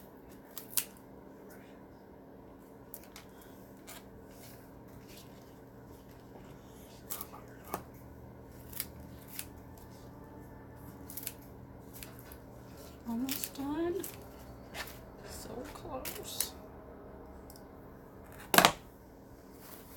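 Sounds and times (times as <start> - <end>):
scissors snipping: 13.1 - 15.0.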